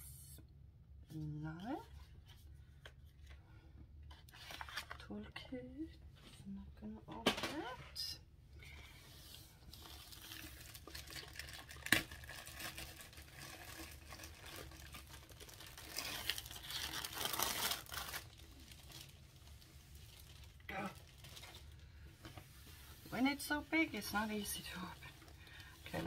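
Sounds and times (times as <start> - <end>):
plastic wrapping crinkling: 9.5 - 23.0.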